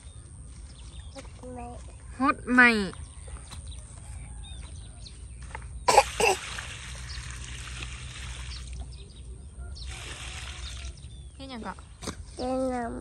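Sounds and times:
water pouring onto dirt: 0:05.9 - 0:09.0, 0:09.8 - 0:11.3
water splashing: 0:05.9 - 0:09.0, 0:09.9 - 0:11.1.

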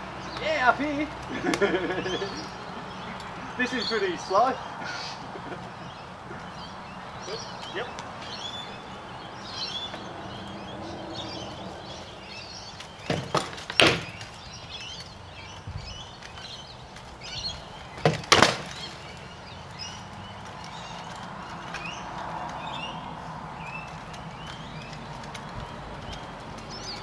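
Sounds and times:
birds chirping: 0:00.0 - 0:27.0
sword blows on shields: 0:13.0 - 0:14.2.

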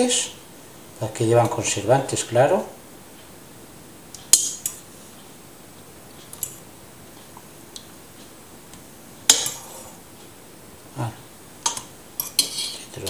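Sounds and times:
fork tapping metal pot: 0:09.3 - 0:09.6, 0:11.6 - 0:12.8.

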